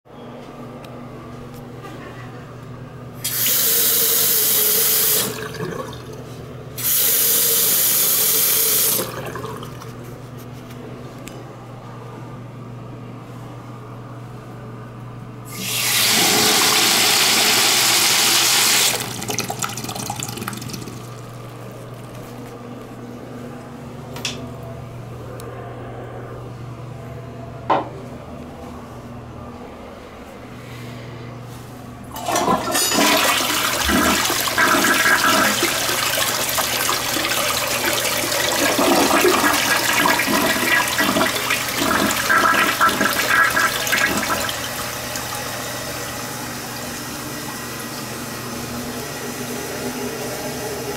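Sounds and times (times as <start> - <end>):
urinal flushing: 3.2 - 10.0, 15.5 - 22.3, 32.1 - 50.9
faucet running: 15.5 - 21.5, 32.2 - 48.2
steady low hum: 19.2 - 32.7.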